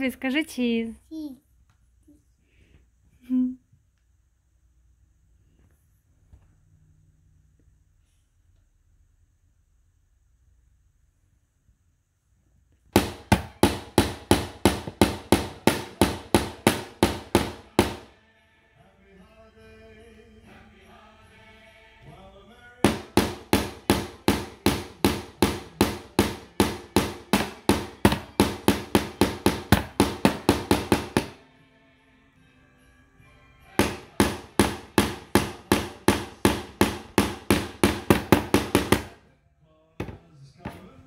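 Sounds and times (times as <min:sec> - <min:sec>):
hammer driving nails into wood: 0:12.9 - 0:18.1, 0:22.8 - 0:31.4, 0:33.8 - 0:39.2.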